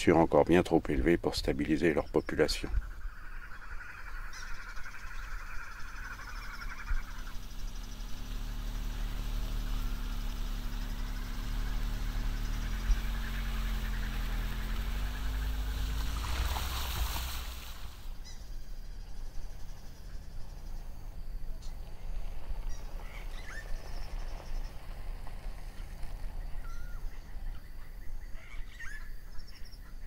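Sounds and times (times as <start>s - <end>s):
car engine running: 4.9s - 27.7s
tyre noise on wet road: 6.4s - 18.4s, 19.5s - 27.5s.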